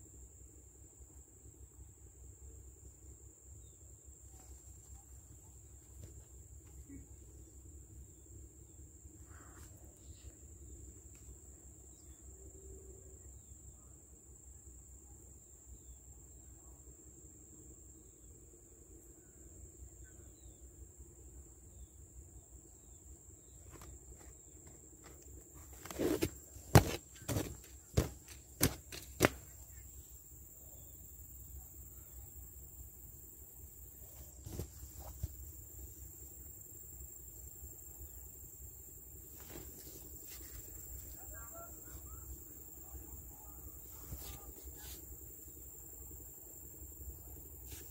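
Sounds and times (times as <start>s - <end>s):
high-pitched insect whine: 3.2s - 47.9s
small knocks: 25.8s - 29.4s.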